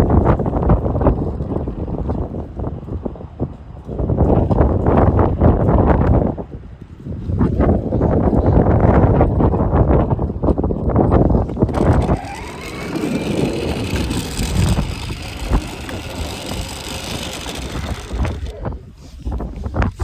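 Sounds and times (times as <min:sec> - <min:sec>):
wind buffeting microphone: 0:00.0 - 0:20.0
plastic wheels on asphalt: 0:11.0 - 0:20.0
toy electric vehicle driving: 0:11.4 - 0:18.8.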